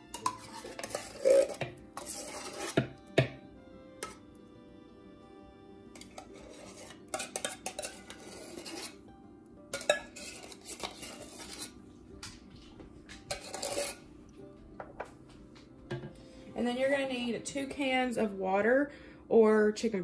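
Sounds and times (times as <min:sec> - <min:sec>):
spoon scraping and stirring soup: 0:00.0 - 0:03.4, 0:04.0 - 0:04.4, 0:05.9 - 0:16.4
spoon clinking against bowl: 0:00.1 - 0:03.3, 0:06.0 - 0:08.9, 0:09.7 - 0:11.2.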